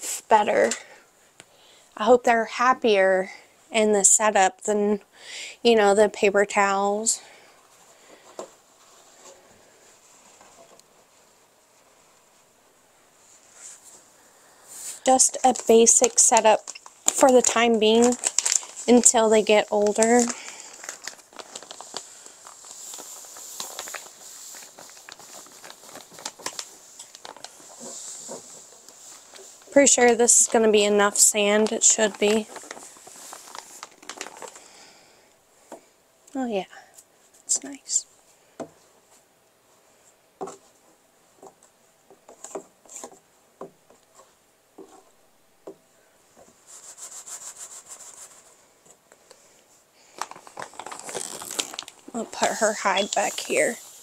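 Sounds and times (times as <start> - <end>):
bag crackling: 14.9 - 35.1, 50.0 - 54.0.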